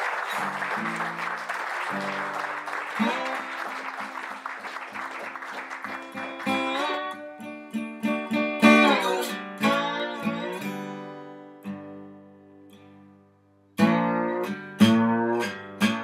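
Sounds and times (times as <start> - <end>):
applause: 0.0 - 7.2
acoustic guitar music: 0.0 - 16.0.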